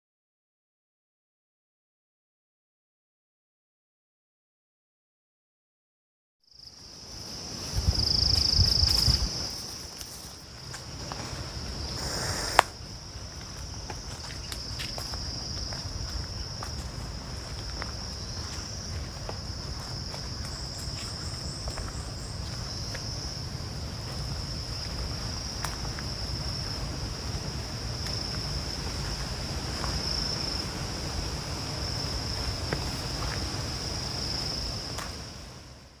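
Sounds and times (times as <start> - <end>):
insects droning: 6.4 - 36.0
footsteps on a trail: 7.4 - 35.6.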